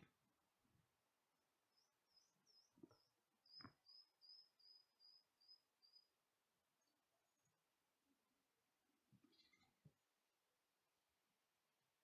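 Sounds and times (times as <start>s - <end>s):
bird chirping: 1.7s - 6.2s, 6.8s - 7.7s, 9.2s - 9.7s.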